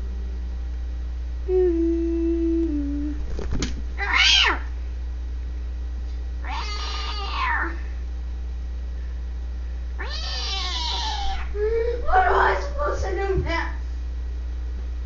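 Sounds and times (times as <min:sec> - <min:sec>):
steady low hum: 0:00.0 - 0:15.0
cat meowing: 0:04.0 - 0:04.7, 0:06.4 - 0:07.8, 0:10.0 - 0:11.5.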